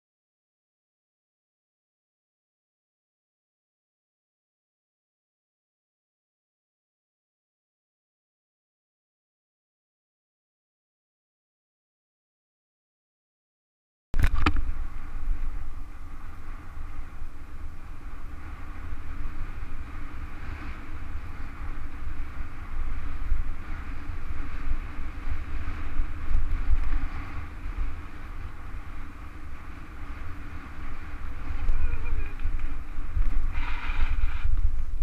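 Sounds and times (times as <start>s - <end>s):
bike tyres rolling on dirt: 14.2s - 35.0s
wind buffeting microphone: 14.2s - 35.0s.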